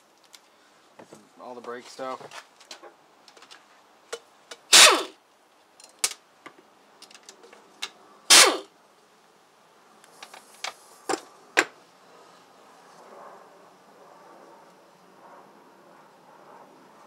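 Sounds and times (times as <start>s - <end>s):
air wrench spinning: 4.7s - 5.2s, 8.3s - 8.7s.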